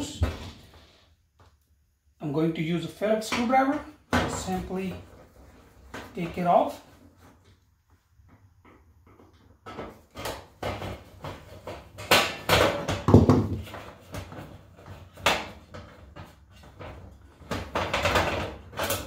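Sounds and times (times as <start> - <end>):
sheet metal cover rattling and clanking: 9.0 - 19.0.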